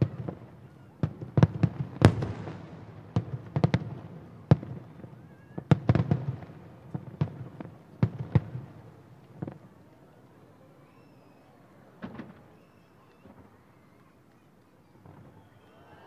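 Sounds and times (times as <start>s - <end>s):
distant fireworks bangs: 0.0s - 9.7s, 12.0s - 13.6s.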